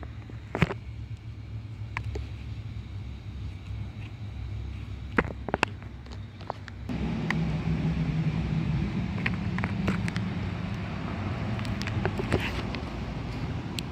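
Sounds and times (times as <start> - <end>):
motor humming: 6.9 - 13.9.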